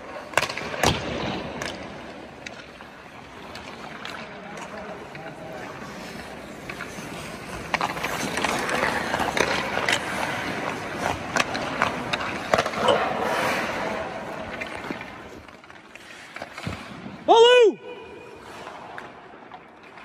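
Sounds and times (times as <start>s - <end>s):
skate blades scraping ice: 0.0s - 17.5s, 18.1s - 20.0s
stick hitting puck: 0.2s - 5.4s, 6.6s - 17.1s.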